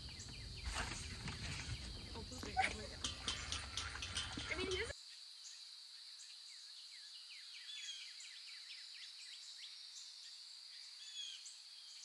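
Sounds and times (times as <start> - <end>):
birds chirping and whistling: 0.0 - 4.9.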